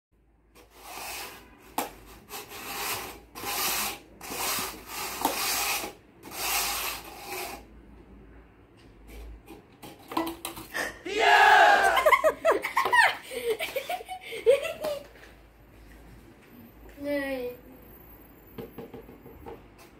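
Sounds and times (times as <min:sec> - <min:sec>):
plastic cups scraping on table: 0:00.6 - 0:07.7.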